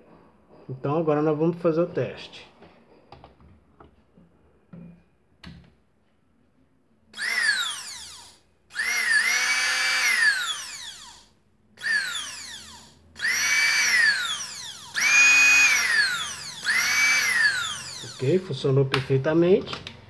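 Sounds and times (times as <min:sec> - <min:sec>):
small motor whining: 0:07.2 - 0:18.4.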